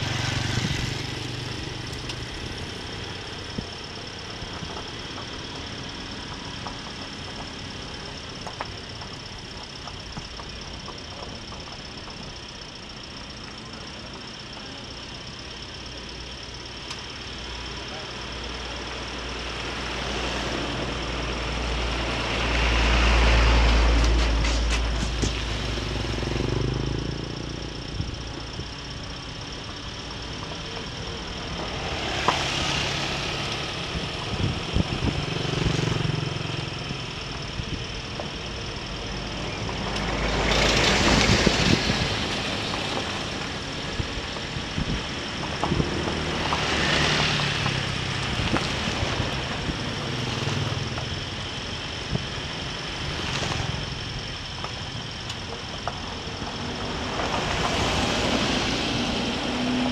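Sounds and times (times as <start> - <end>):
motorcycle engine running: 0.0 - 59.9
tyres on gravel road: 0.0 - 59.9
wind noise: 33.8 - 36.0, 40.6 - 46.3.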